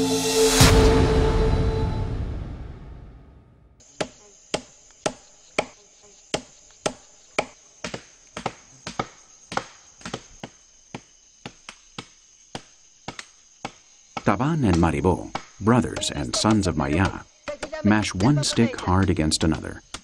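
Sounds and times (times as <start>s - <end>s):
stick pounding vine on wood: 4.0s - 20.0s.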